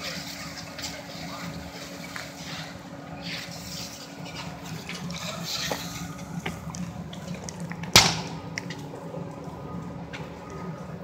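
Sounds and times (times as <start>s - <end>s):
fire popping and crackling: 0.0s - 11.0s
low hum and hiss: 0.0s - 11.0s
sharp bang: 8.0s - 8.4s.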